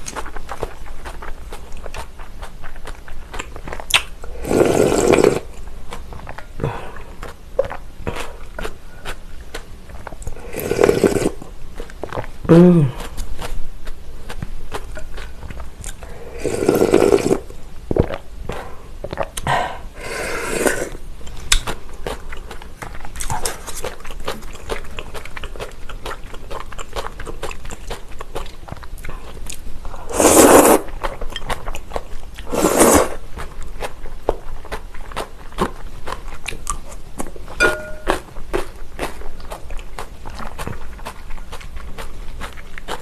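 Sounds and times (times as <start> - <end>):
crunchy chewing: 0.0 - 18.3, 20.8 - 43.0
slurping noodles: 4.3 - 5.5, 10.3 - 11.5, 16.1 - 18.2, 19.9 - 21.0, 30.0 - 31.1, 32.4 - 33.2.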